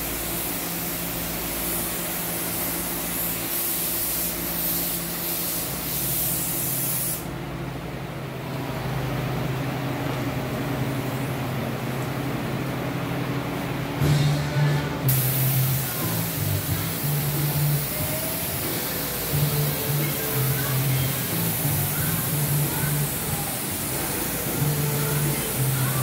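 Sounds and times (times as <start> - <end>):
paint spray gun hissing: 0.0 - 7.3, 15.0 - 26.0.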